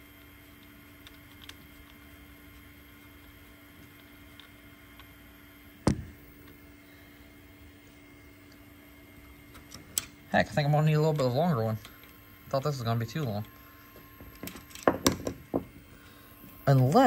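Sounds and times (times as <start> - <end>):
low steady hum: 0.0 - 17.0
sharp loud thump: 5.8 - 6.2.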